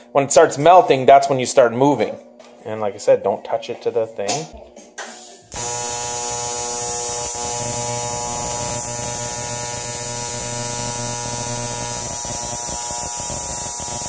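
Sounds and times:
welding arc buzzing and hissing: 5.5 - 14.0.

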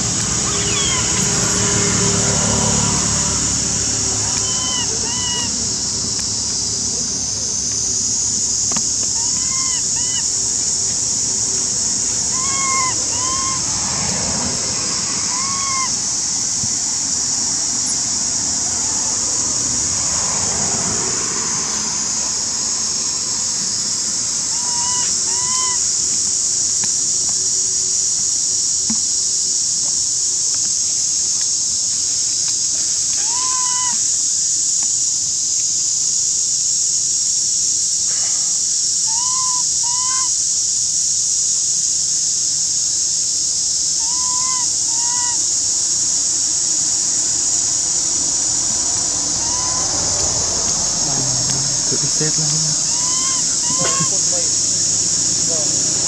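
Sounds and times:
high-pitched insect drone: 0.0 - 56.0
animal calls rising and falling: 0.4 - 1.8, 2.8 - 5.7, 9.1 - 10.4, 11.7 - 16.7, 24.4 - 25.9, 33.2 - 34.0, 44.0 - 45.5, 47.9 - 56.0.

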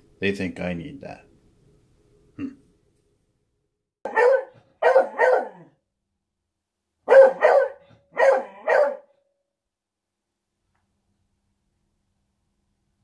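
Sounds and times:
dog barking: 4.0 - 5.8, 7.1 - 9.2.

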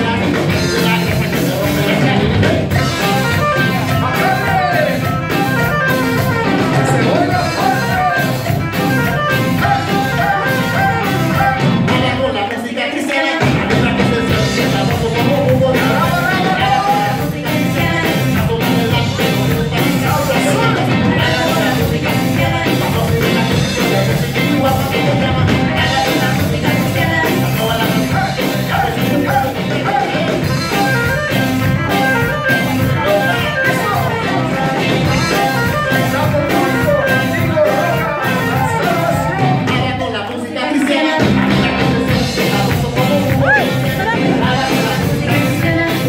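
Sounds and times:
electric bass: 0.0 - 12.4, 13.4 - 40.2, 41.2 - 46.0
drum kit: 0.0 - 12.6, 13.3 - 40.2, 40.9 - 46.0
guitar: 0.0 - 46.0
voices singing: 0.0 - 46.0
trumpets: 2.8 - 11.9.

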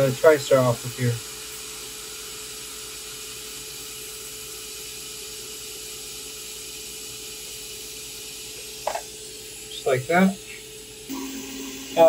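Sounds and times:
hot air blower hissing: 0.0 - 12.0
steady hum: 2.9 - 12.0.

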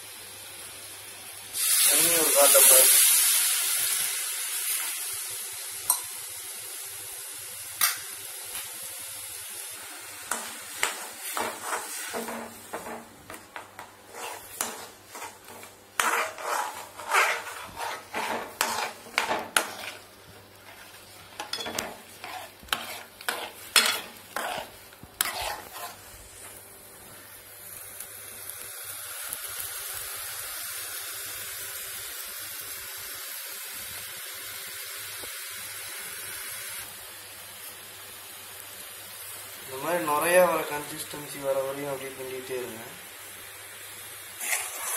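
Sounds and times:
syrup boiling hiss: 0.0 - 44.9
spoon scraping metal pan: 10.3 - 26.1, 44.4 - 44.9.

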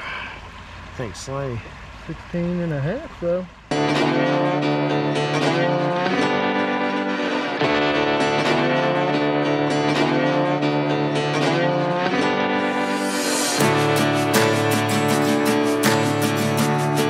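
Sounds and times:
plucked guitar music: 3.7 - 17.0.

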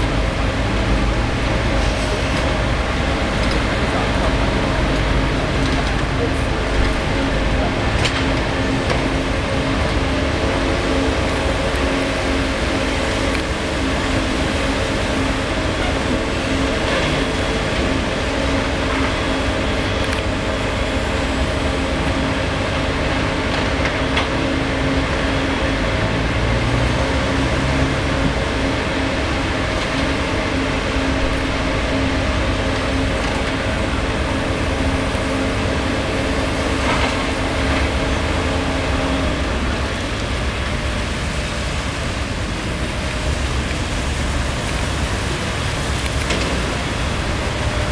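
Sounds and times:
excavator engine rumble: 0.0 - 47.9.

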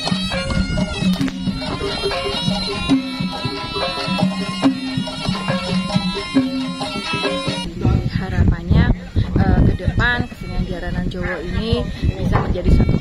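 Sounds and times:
gong-like bronze percussion: 0.0 - 8.0
shrill shawm melody: 0.0 - 8.1
drums: 0.0 - 10.2.

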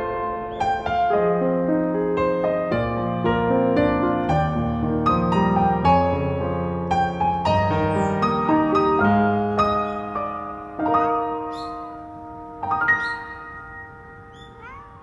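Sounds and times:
piano chords: 0.0 - 15.0
piano melody: 0.0 - 15.0.

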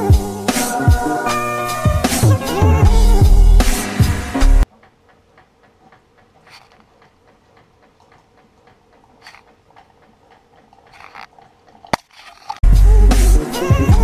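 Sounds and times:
rapid regular ticking: 4.7 - 12.6
clicks: 4.8 - 12.6.

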